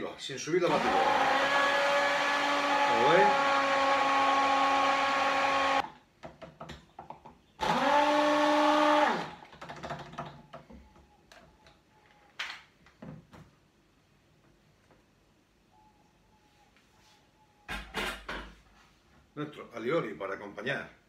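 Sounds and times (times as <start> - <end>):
immersion blender whirring: 0.7 - 5.8, 7.6 - 9.4.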